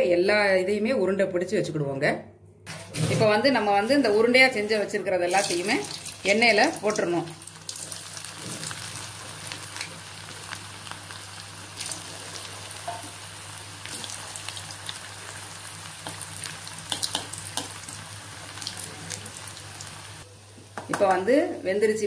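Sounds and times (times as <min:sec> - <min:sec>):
fritters sizzling in hot oil: 0:05.3 - 0:21.3.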